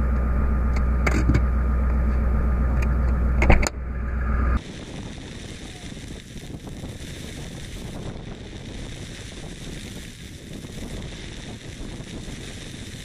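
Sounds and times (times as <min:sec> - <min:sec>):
wind noise on microphone: 0:03.4 - 0:13.0.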